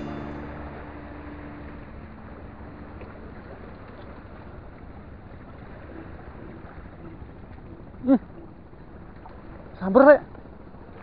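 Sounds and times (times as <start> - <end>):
low hum: 0.0 - 6.8
water along rocks: 0.0 - 11.0.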